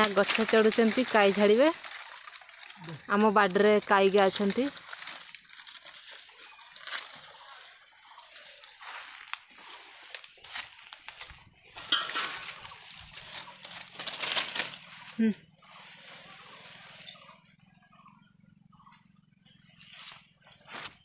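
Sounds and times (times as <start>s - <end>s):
twigs snapping: 0.0s - 3.2s, 4.2s - 7.4s, 8.5s - 14.9s
dry leaves rustling and crackling: 0.0s - 17.2s.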